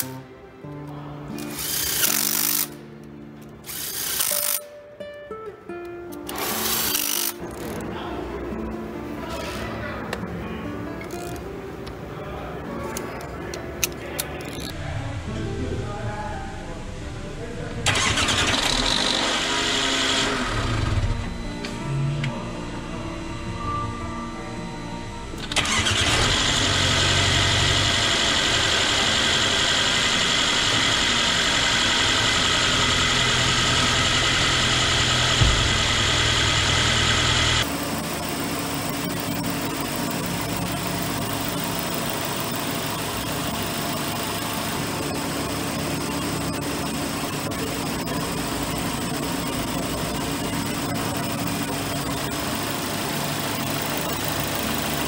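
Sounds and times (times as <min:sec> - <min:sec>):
car engine idling: 0:25.7 - 0:55.0.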